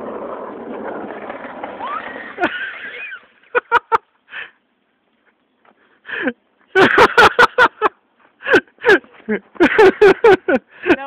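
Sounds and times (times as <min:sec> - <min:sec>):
skateboard wheels rumbling on concrete: 0:00.0 - 0:03.8.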